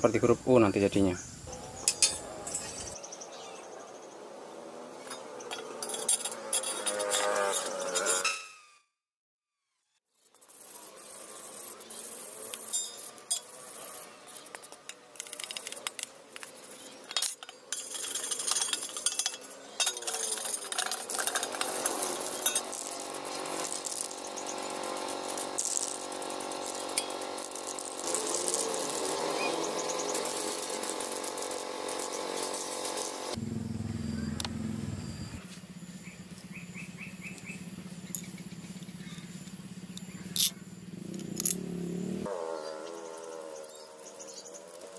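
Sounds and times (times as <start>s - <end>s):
aerosol spray can hissing: 21.8s - 33.4s.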